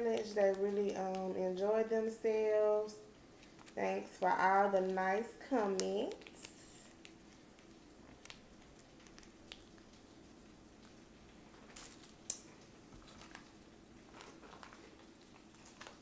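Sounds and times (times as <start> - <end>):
plastic sachet crinkling and squishing: 3.2 - 16.0.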